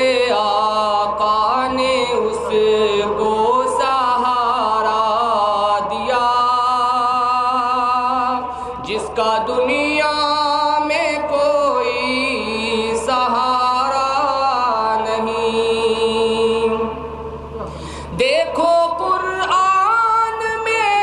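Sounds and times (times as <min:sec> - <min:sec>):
man singing unaccompanied: 0:00.0 - 0:16.9, 0:18.2 - 0:21.0.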